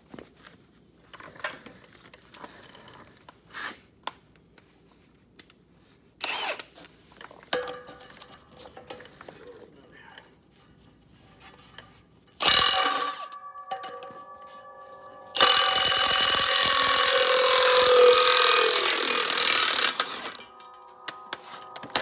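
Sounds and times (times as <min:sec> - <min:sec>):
metallic clinks: 0:11.4 - 0:22.0
metallic ringing: 0:11.6 - 0:22.0
impact wrench hammering: 0:12.4 - 0:22.0.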